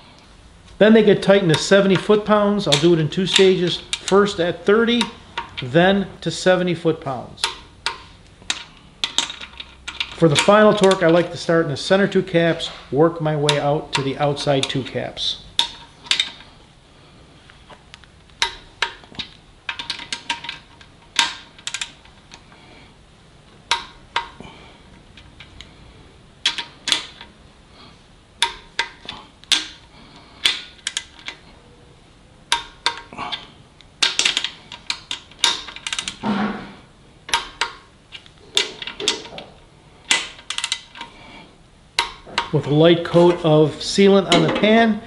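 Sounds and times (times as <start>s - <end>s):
torque wrench clicking and ratcheting: 32.5s - 36.3s, 37.3s - 39.3s, 40.1s - 41.2s, 42.0s - 42.6s.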